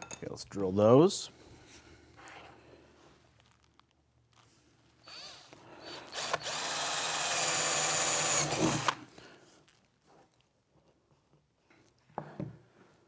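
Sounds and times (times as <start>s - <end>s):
cordless drill boring wood: 5.0s - 9.1s.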